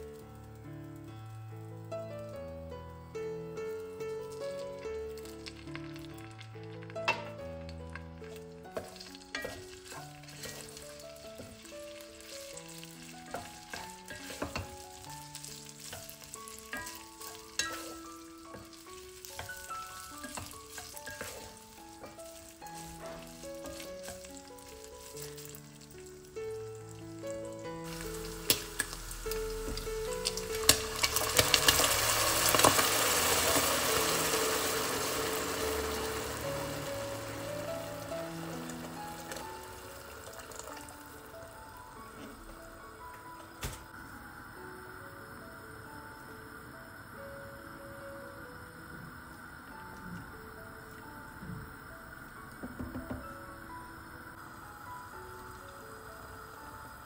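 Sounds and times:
food sizzling in a pot: 0.0s - 57.0s
slow melodic background music: 0.0s - 57.0s
water pouring from kettle: 26.8s - 41.4s.

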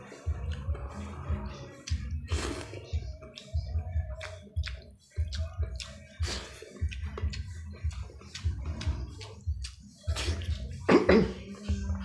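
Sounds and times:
wet chewing and lip-smacking: 1.8s - 10.9s
sharp wet clicks: 4.2s - 6.0s.

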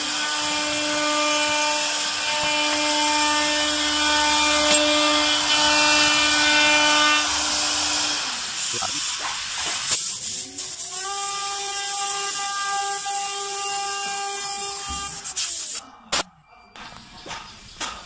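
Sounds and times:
steady hiss: 7.4s - 13.7s, 14.4s - 15.8s.

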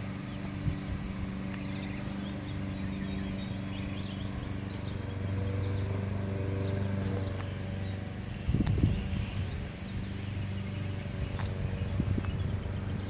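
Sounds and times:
birds chirping: 0.0s - 13.0s
low mechanical hum: 0.0s - 13.0s.

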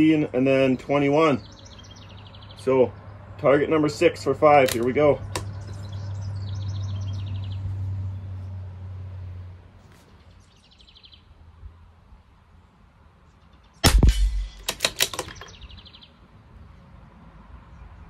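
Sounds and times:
rifle bolt metallic clicks: 4.6s - 5.6s, 13.8s - 15.6s
rifle shot: 13.8s - 15.4s.

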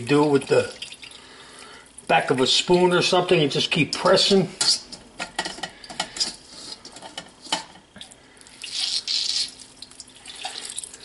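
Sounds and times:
water splashing and dripping: 0.6s - 1.2s, 8.5s - 11.0s.

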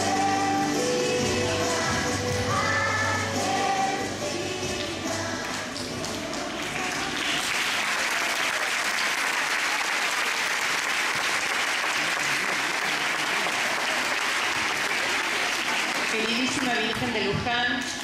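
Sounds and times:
audience applauding: 6.4s - 17.1s.

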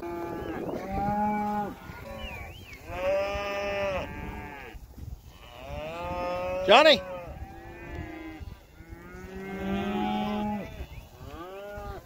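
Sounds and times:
cattle mooing: 5.5s - 12.0s.

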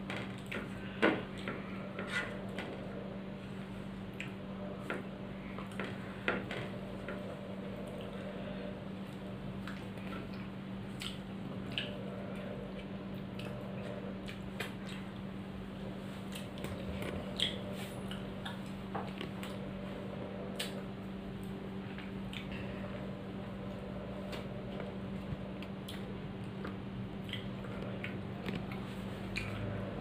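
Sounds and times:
steady low hum: 0.0s - 30.0s
chewing and finger-licking smacks: 4.1s - 4.5s, 9.1s - 15.3s, 16.2s - 19.7s, 20.5s - 20.8s, 21.4s - 22.6s, 25.5s - 29.8s
wet squishy food mixing: 9.1s - 30.0s.

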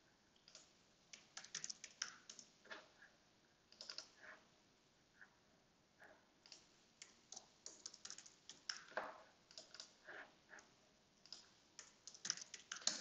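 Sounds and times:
typing on computer keyboard: 0.4s - 2.8s, 3.7s - 4.2s, 6.4s - 10.0s, 11.2s - 13.0s.

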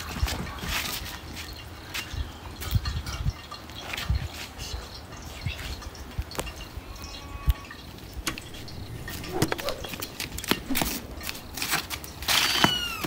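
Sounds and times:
knocks clicks and scuffs of swing: 8.2s - 13.0s
child crying out: 12.5s - 13.0s.

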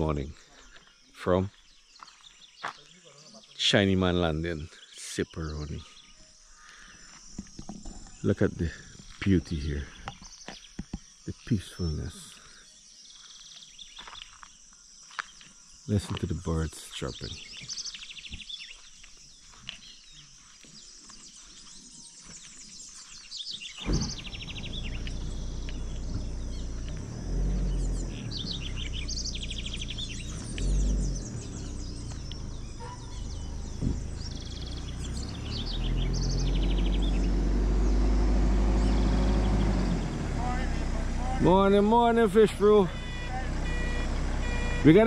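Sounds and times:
birds chirping and trilling: 0.0s - 45.0s
low rumble: 23.8s - 37.2s.

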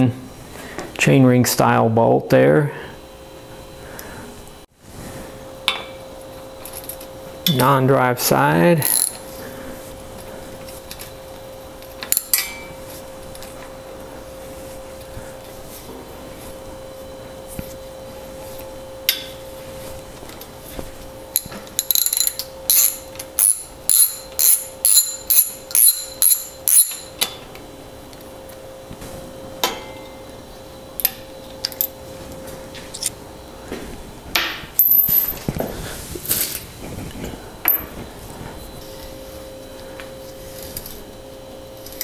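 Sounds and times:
socket ratchet clicking: 8.8s - 9.2s
metal clinks of tools and bolt: 21.4s - 27.3s.

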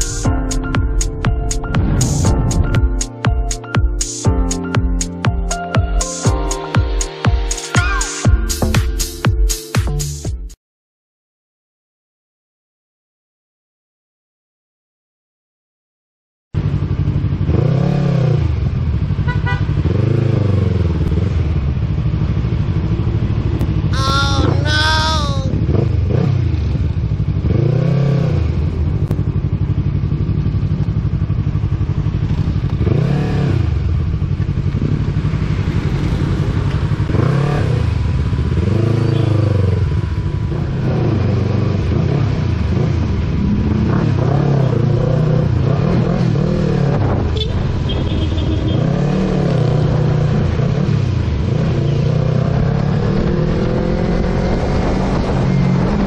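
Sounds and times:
road noise: 0.0s - 3.6s, 16.6s - 56.0s
motorcycle engine revving: 16.6s - 24.0s, 25.5s - 56.0s.

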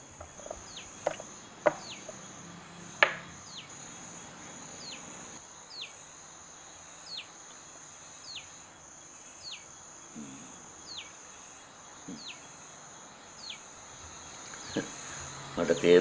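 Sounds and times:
high falling chirp: 0.0s - 6.0s
insects droning: 0.0s - 16.0s.

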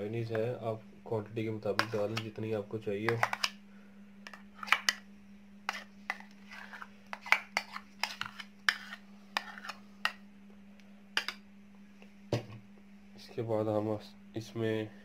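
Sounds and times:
steady low hum: 0.0s - 15.0s
spoon scraping a bowl: 1.8s - 2.3s, 3.1s - 3.6s, 4.3s - 5.0s, 5.7s - 10.2s.

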